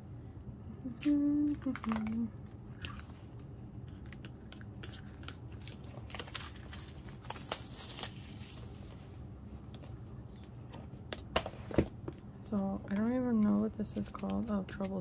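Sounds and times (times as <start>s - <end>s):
plastic wrap crinkling and tearing: 1.0s - 9.0s.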